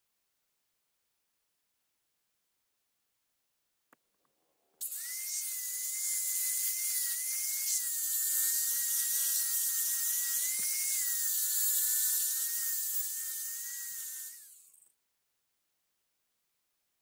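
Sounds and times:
angle grinder whining on metal: 4.8s - 15.0s.

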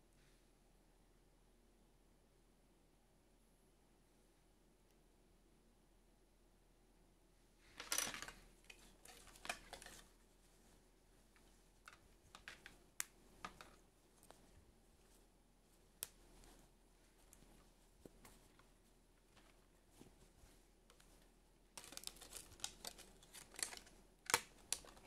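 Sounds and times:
plastic rustling and crinkling: 7.6s - 25.0s.

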